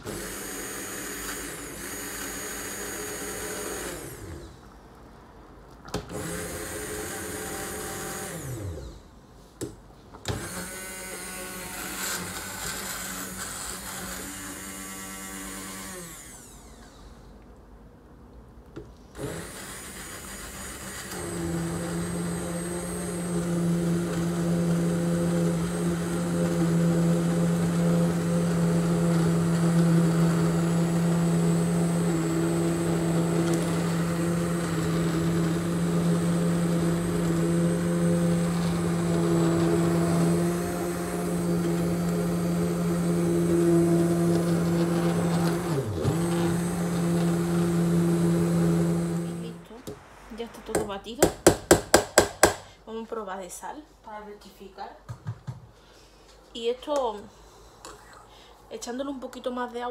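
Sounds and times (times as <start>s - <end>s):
immersion blender running: 0.0s - 4.6s, 6.1s - 8.9s, 10.3s - 17.0s, 19.2s - 49.6s.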